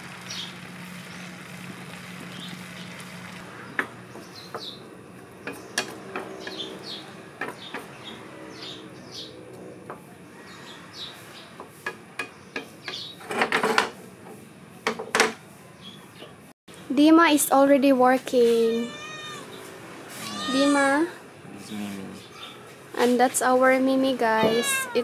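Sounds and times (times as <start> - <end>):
birds chirping: 0.2 - 13.2, 18.6 - 25.0.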